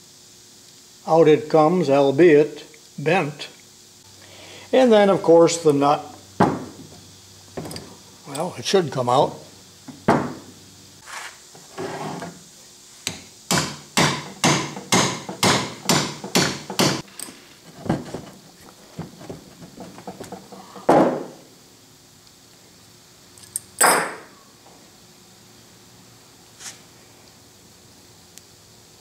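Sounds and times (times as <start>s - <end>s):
hammer knocking on steel vise: 13.5s - 17.0s.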